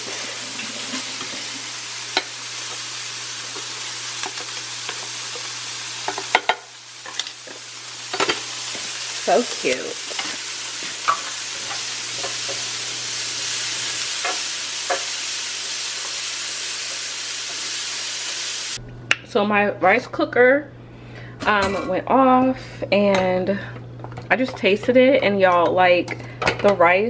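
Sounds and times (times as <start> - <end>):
vegetables sizzling on a griddle: 0.0 - 18.8.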